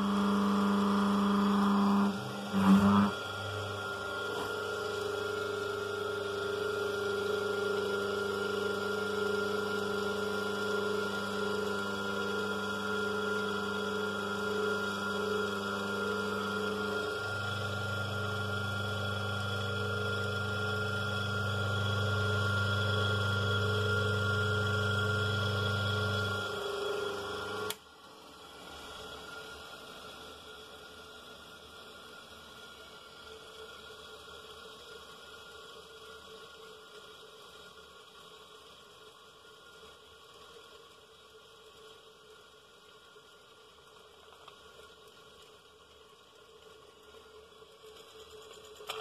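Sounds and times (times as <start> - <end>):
electric motor humming: 0.0 - 27.8.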